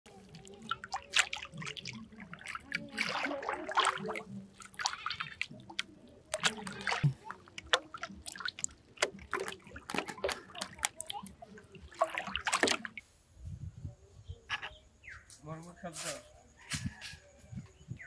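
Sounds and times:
water sloshing and dripping: 0.0s - 13.1s
bottles splashing into water: 0.2s - 13.0s.

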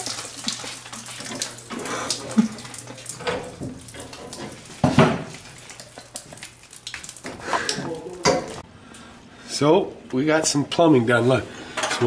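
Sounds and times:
water gushing from leaking pipe: 0.0s - 8.6s.

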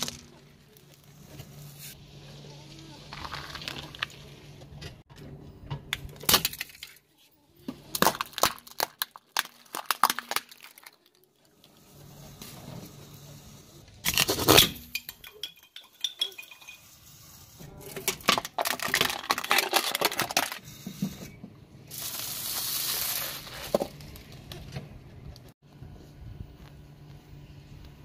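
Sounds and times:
plastic eggs cracking: 3.1s - 4.2s, 7.8s - 11.4s, 18.0s - 20.6s
drink cans crunching: 7.9s - 11.2s, 17.9s - 20.6s
foil crinkling: 7.9s - 11.5s, 18.2s - 20.6s, 21.9s - 24.4s.

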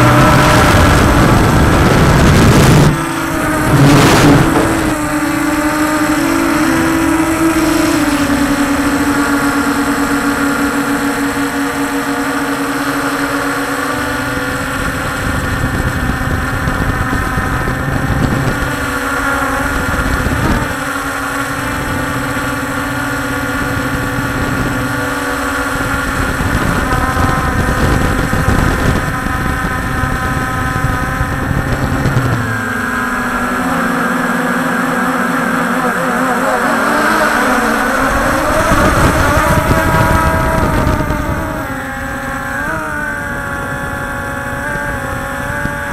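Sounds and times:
drone propellers buzzing: 0.0s - 45.9s
low rumble: 0.8s - 6.2s.

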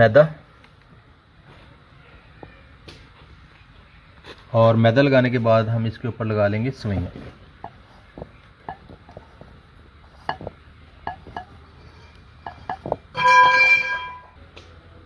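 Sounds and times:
utensils and dishes clinking: 10.2s - 14.4s
bright ringing clink: 13.2s - 14.4s.

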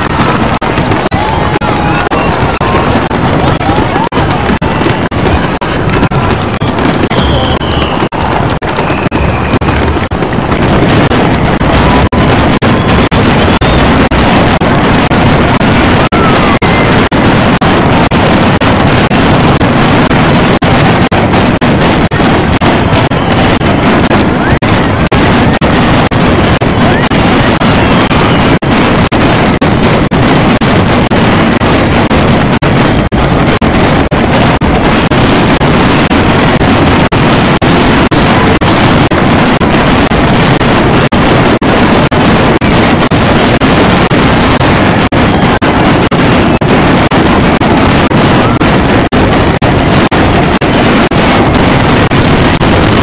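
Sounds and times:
fireworks explosions and crackling: 0.0s - 53.0s.

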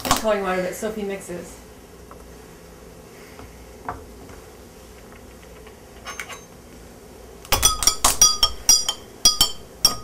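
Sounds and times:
spoon clinking glass: 7.5s - 10.0s.

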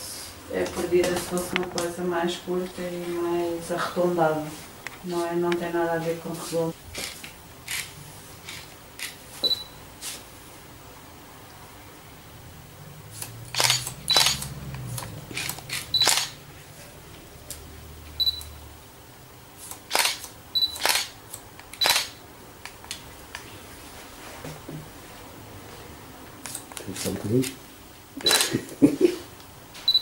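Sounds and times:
scissors snipping hair: 13.2s - 16.4s, 26.4s - 27.6s.

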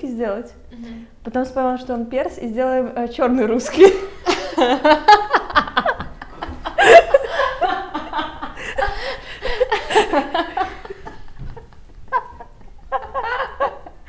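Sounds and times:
women laughing: 3.6s - 14.0s.

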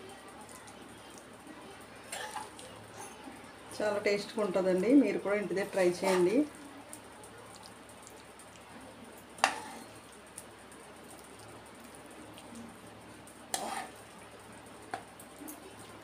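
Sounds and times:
spoon scooping from frying pan: 2.0s - 2.6s, 5.6s - 6.6s, 9.4s - 10.2s, 13.4s - 14.1s.

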